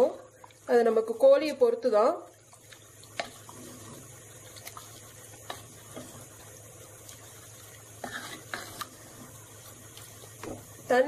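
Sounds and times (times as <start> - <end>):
spatula scraping in pot: 7.1 - 10.5.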